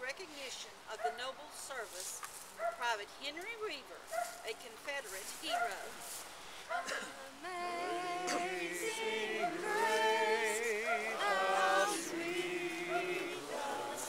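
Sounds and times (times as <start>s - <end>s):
voices singing unaccompanied: 6.8s - 14.0s.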